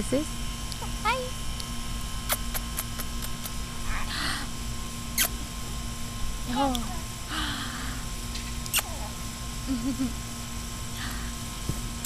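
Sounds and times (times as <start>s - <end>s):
low hum: 0.0s - 12.0s
lip kissing smacks: 2.2s - 3.6s, 5.2s - 5.4s, 8.4s - 9.1s
soft breathing: 7.2s - 8.2s.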